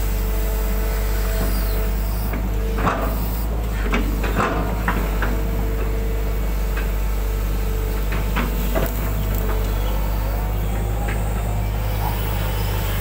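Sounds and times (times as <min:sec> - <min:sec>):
diesel engine under load: 0:00.0 - 0:13.0
hydraulic whine: 0:00.0 - 0:13.0.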